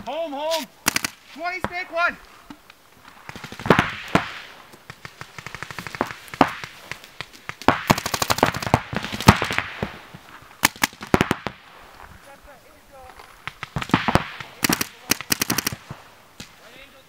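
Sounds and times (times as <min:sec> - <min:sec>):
paintball markers firing: 0:00.5 - 0:01.8, 0:02.5 - 0:11.6, 0:13.1 - 0:16.6.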